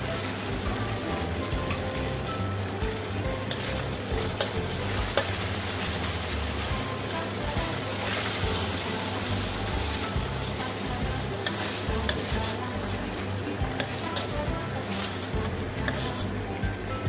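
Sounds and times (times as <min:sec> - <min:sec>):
food sizzling in hot oil: 0:00.0 - 0:17.0
utensil clicking against pan: 0:01.5 - 0:02.2, 0:02.8 - 0:05.7, 0:10.2 - 0:12.6, 0:13.4 - 0:16.4.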